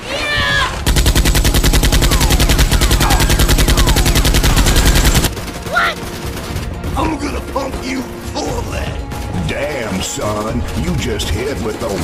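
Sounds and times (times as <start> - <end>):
machine-gun fire: 0.8 - 7.5.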